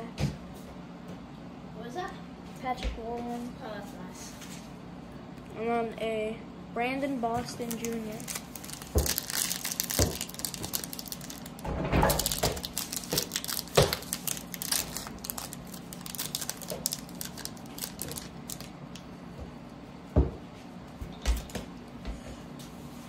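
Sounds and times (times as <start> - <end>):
foil wrapper crinkling: 7.6 - 19.0.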